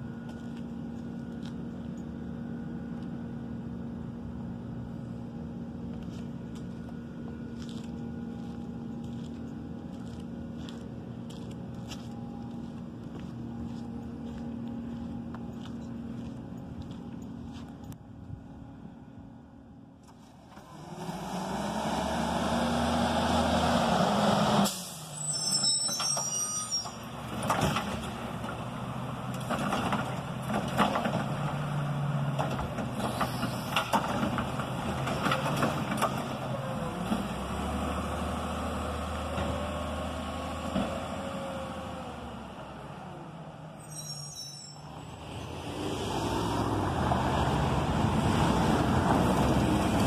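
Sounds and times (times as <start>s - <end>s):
distant garbage truck engine: 0.0s - 50.0s
diesel truck engine revving: 20.6s - 25.2s, 27.1s - 43.6s, 45.0s - 50.0s
high chirps: 43.8s - 45.1s.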